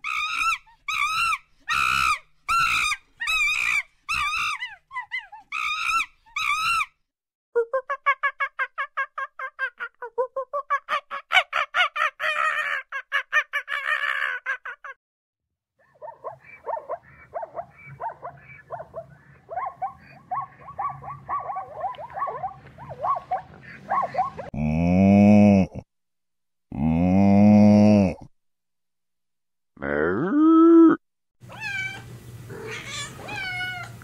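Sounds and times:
macaque chattering calls: 16.1 - 24.5.

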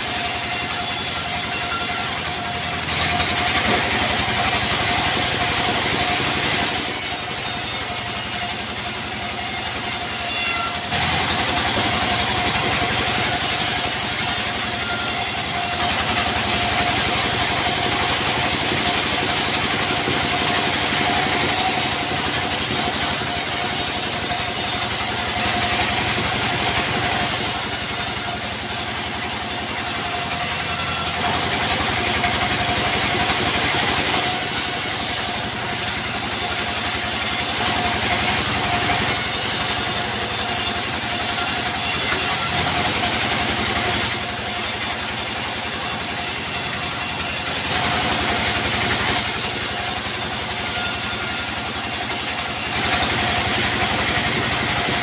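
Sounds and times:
bandsaw mill whining: 0.0 - 55.0
saw blade cutting log: 0.0 - 55.0.

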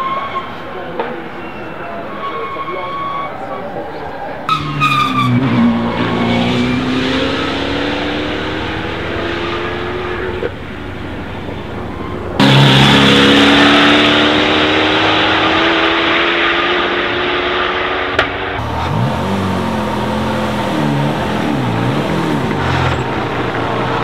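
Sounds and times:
race car engine accelerating: 4.5 - 11.1, 12.4 - 24.0.

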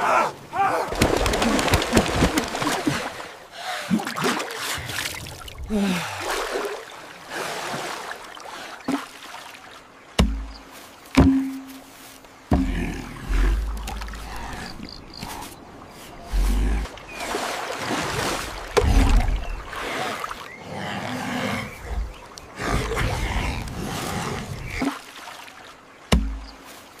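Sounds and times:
water splashing and sloshing: 0.0 - 27.0
sharp deep thuds: 10.2 - 11.8.

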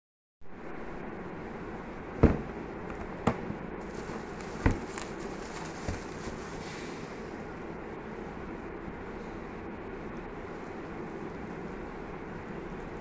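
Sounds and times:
plastic wrap crinkling: 3.8 - 6.6.

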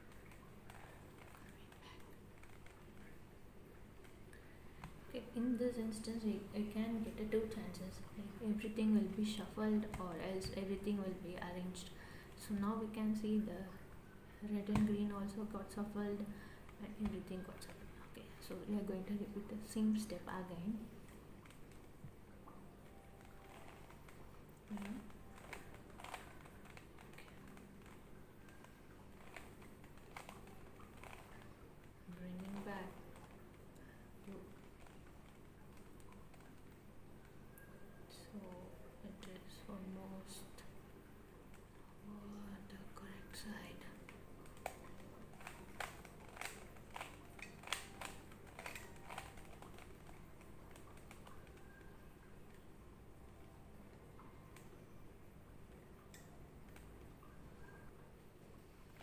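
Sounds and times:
puzzle cube clicking as turned: 23.0 - 31.5, 44.1 - 51.9
puzzle cube layers clicking: 44.5 - 51.8.

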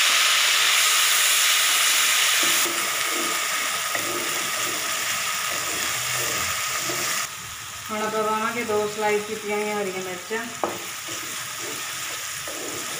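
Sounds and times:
onion paste sizzling in hot oil: 0.0 - 12.9
wooden spatula stirring: 2.4 - 7.3, 10.6 - 12.9.

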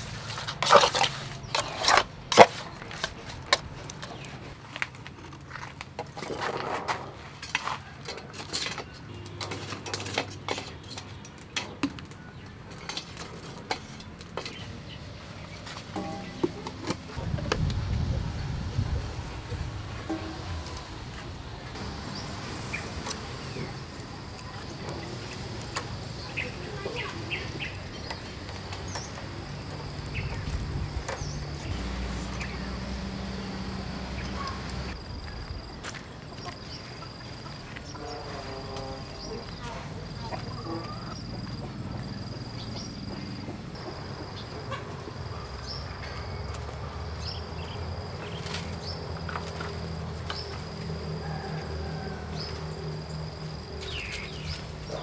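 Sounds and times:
birds chirping: 21.7 - 55.0
high-pitched insect whine: 46.3 - 55.0.

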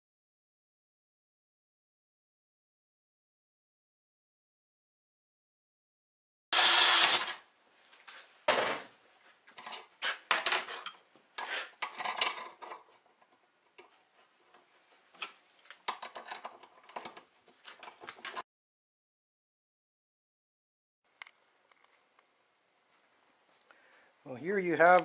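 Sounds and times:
cordless drill boring into steel: 6.6 - 7.4.

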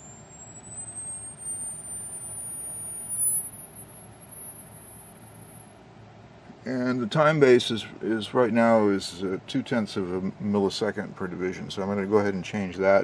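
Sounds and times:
high thin electronic whistle: 0.0 - 13.0.

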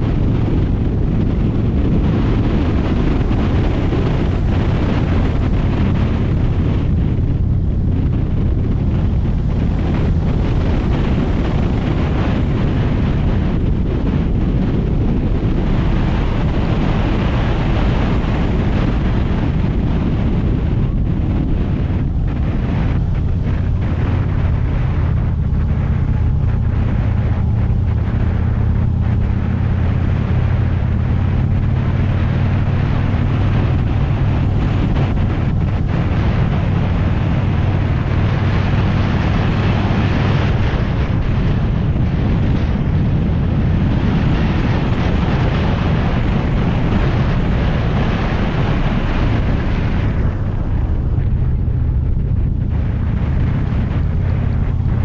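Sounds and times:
motorcycle engine running: 0.0 - 55.0
wind noise on microphone: 0.0 - 55.0.

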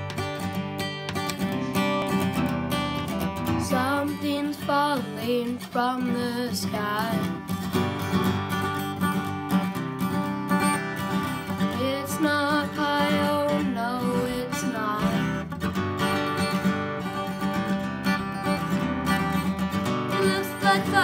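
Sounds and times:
acoustic guitar strumming: 0.0 - 21.0
young man singing: 3.6 - 7.4, 11.8 - 15.3, 20.2 - 21.0.

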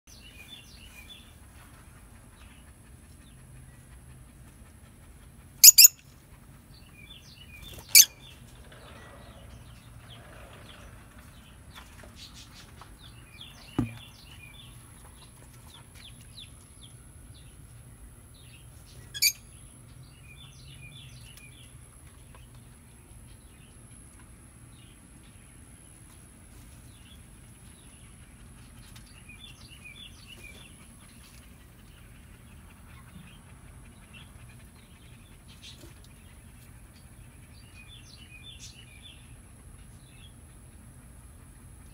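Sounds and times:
lovebirds chirping: 5.6 - 6.0, 6.8 - 14.8, 18.4 - 21.8
shrill bird calls: 5.6 - 6.0, 7.7 - 8.3, 19.2 - 19.4
soft knock: 13.8 - 14.0.

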